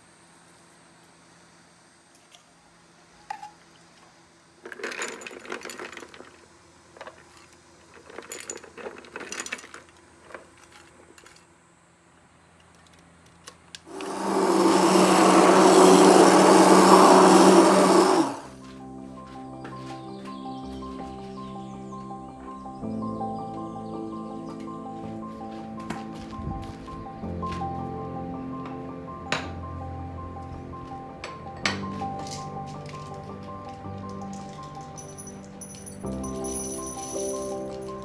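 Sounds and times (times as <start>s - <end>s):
immersion blender running: 13.9s - 18.5s.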